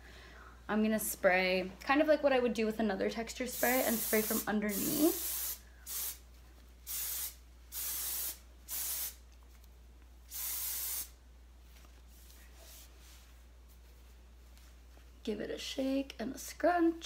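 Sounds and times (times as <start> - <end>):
hairspray hissing bursts: 3.6 - 6.2, 6.8 - 9.2, 10.3 - 11.2.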